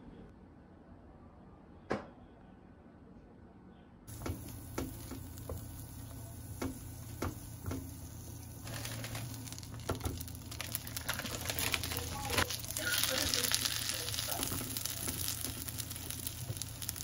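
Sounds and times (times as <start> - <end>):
food sizzling in a pan: 4.1 - 17.0
utensils tapping and clicking: 6.6 - 8.0.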